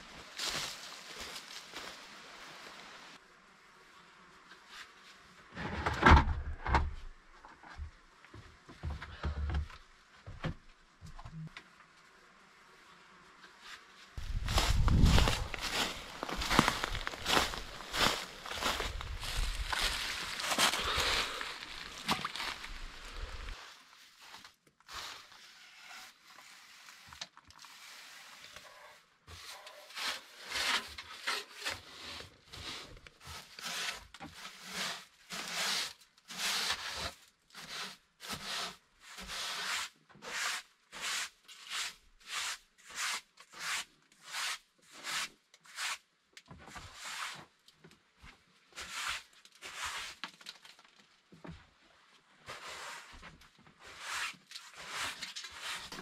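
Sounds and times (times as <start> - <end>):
broom sweeping wooden planks: 4.5 - 5.4, 13.4 - 47.6, 48.6 - 50.5, 52.4 - 56.0.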